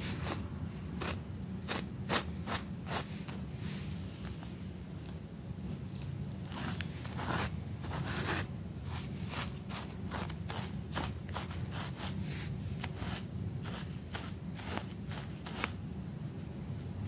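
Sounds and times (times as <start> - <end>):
scrub brush scrubbing wet rug: 6.5 - 15.7.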